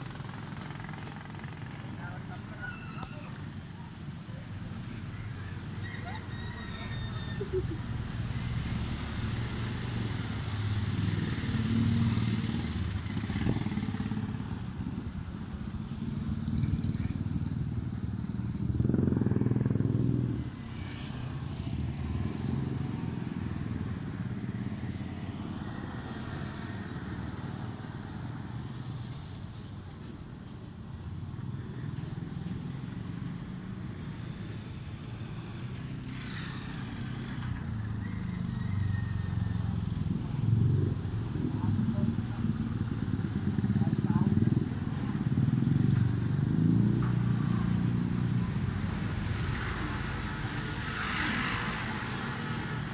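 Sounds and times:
vehicles passing: 0.0s - 52.9s.

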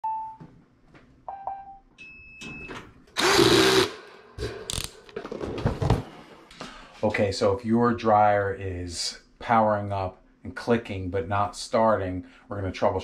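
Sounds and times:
power drill spinning: 3.2s - 4.0s.

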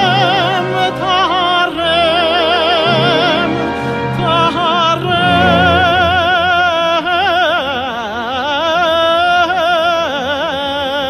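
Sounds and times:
orchestral accompaniment: 0.0s - 7.7s
man singing cantorial melisma: 0.0s - 11.0s.

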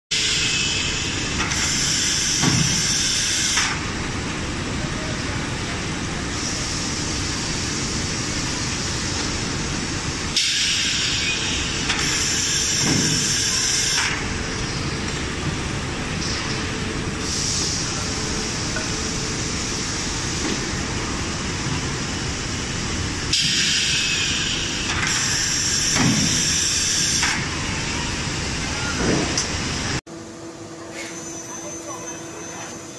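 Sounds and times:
loud hissing bursts: 10.0s - 14.2s, 23.3s - 27.5s.

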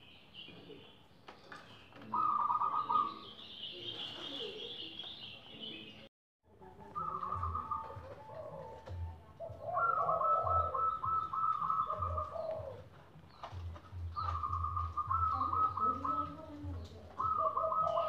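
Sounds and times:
low round dove cooing: 2.0s - 4.9s, 6.7s - 18.0s
rapid high stuttering dove coos: 7.0s - 12.9s, 14.1s - 18.0s.

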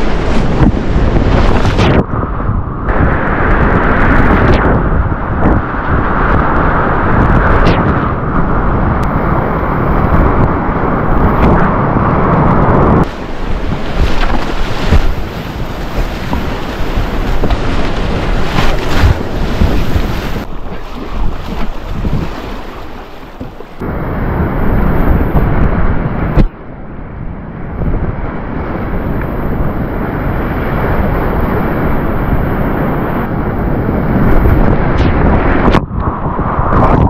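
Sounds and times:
wind hitting microphone: 0.0s - 37.0s
sharp water splashes: 13.0s - 23.8s.

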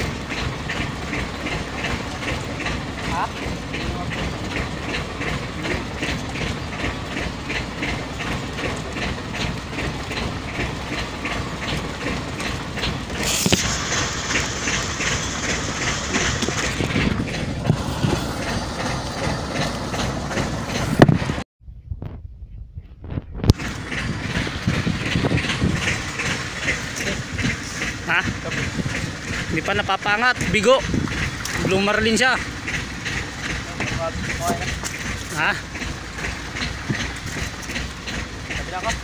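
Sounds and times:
boat engine hum: 0.0s - 21.5s, 23.4s - 39.0s
hiss: 13.2s - 16.6s.

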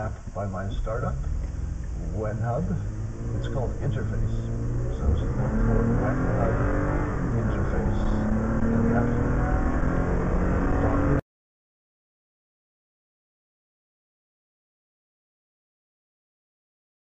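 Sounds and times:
car engine accelerating: 0.0s - 11.2s.

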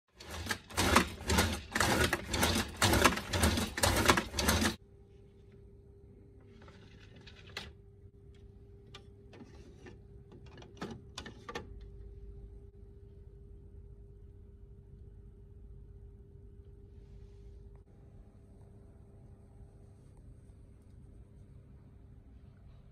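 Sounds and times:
low steady hum: 4.8s - 22.9s.

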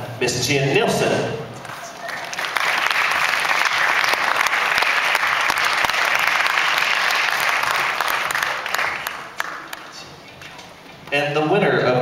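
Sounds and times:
audience applauding: 1.6s - 10.8s.

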